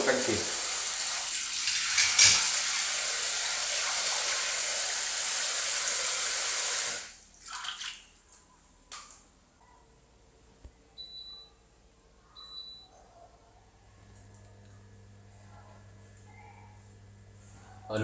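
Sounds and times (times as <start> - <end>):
running water pouring: 0.0 - 8.1
light splashes: 7.4 - 8.4.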